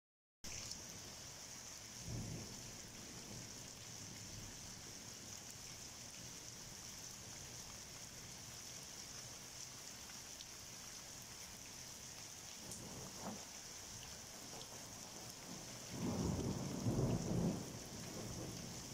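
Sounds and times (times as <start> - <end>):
heavy rain falling: 0.5 - 18.9.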